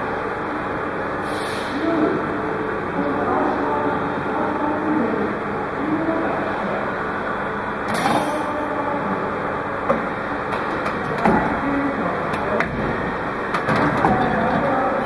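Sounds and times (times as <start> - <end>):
filling machine mechanical din: 1.3 - 15.0
clamps and valves clacking: 7.9 - 8.4, 9.9 - 11.6, 12.3 - 14.8.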